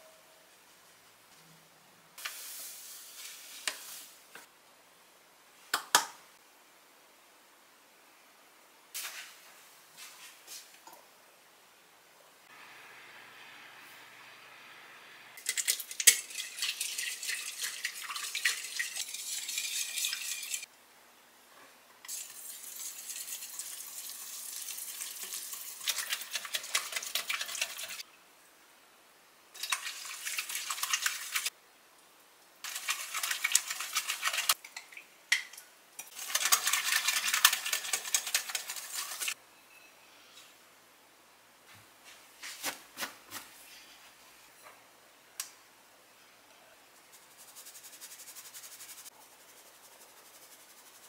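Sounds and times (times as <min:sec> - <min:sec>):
whisk beating batter in glass bowl: 0:25.0 - 0:28.0, 0:29.6 - 0:31.5, 0:32.7 - 0:34.6, 0:36.1 - 0:39.4.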